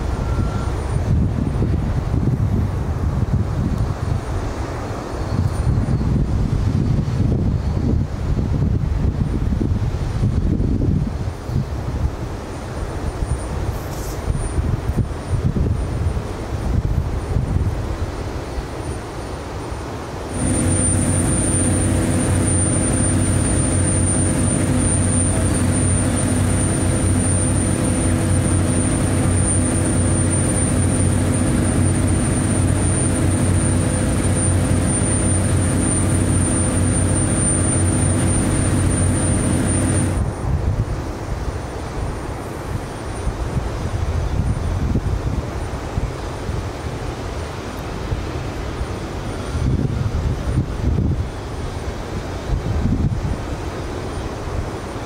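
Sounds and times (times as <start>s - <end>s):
construction machinery engine humming: 0.0s - 3.1s, 19.8s - 40.6s
outdoor noise: 0.0s - 55.0s.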